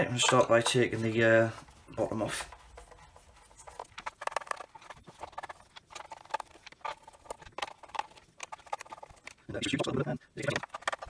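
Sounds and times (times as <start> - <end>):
plastic housing handled: 2.5 - 9.5, 10.4 - 11.0.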